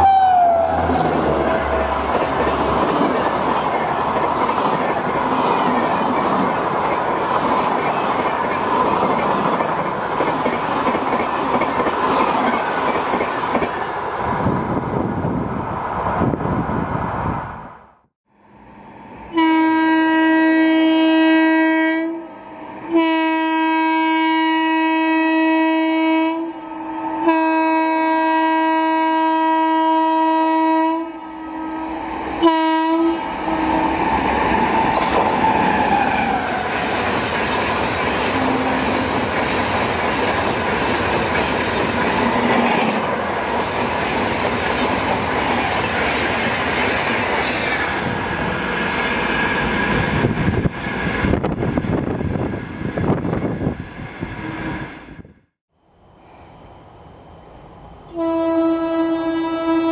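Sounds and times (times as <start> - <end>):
train horn blasts: 0.0 - 1.8, 19.2 - 33.9, 38.3 - 39.2, 58.1 - 59.9
train passing with rail noise: 0.0 - 59.9.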